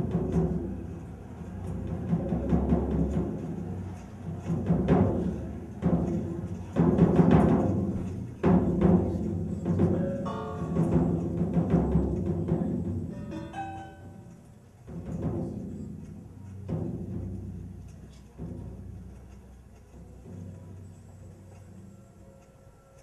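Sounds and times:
low rumbling drum-like swells: 0.0 - 13.4, 14.9 - 21.9
quick runs of short pitched notes: 9.9 - 14.5.

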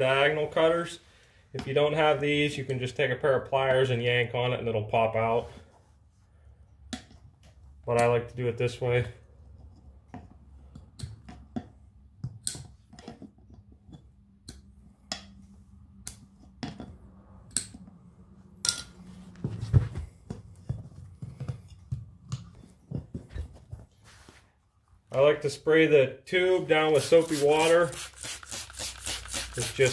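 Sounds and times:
low thumps of tire and rim: 19.3 - 23.9.

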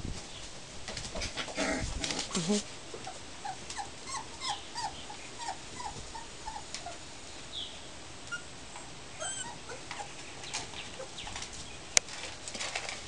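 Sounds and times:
puppies whimpering: 3.1 - 7.0, 8.3 - 10.2.

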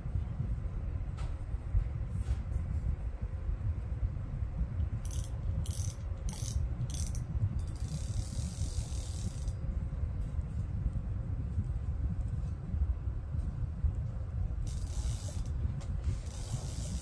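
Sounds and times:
fishing reel gears rattling: 5.0 - 9.6, 14.6 - 17.0.

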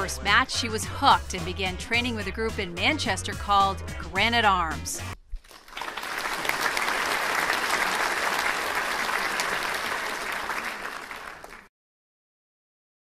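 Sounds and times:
audience applauding: 5.4 - 11.7.

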